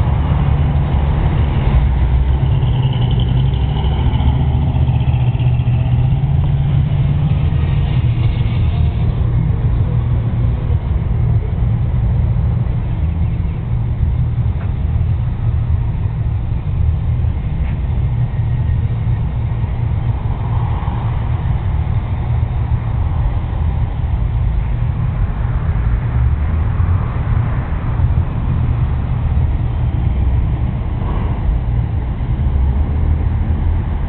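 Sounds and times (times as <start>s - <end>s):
vehicle passing: 0.0s - 10.7s
road traffic rumble: 0.0s - 34.0s.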